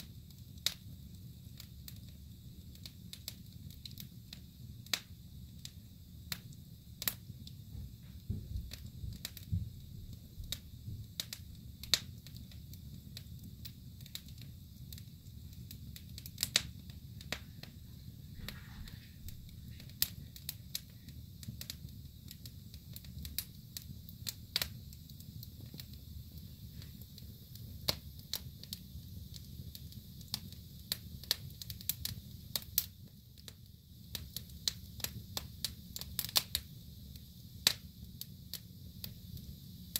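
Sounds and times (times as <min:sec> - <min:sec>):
wood fire crackling and popping: 0:00.0 - 0:39.9
low steady rumble: 0:07.6 - 0:12.1, 0:14.4 - 0:23.1.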